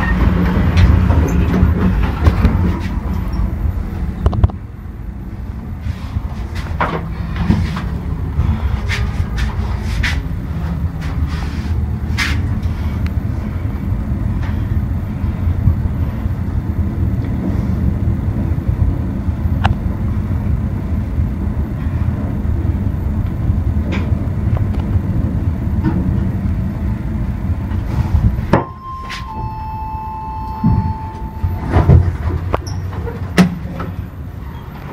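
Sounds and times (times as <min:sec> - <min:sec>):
elevator low rumble: 0:00.0 - 0:34.9
elevator arrival chime: 0:03.1 - 0:03.8, 0:28.5 - 0:32.9.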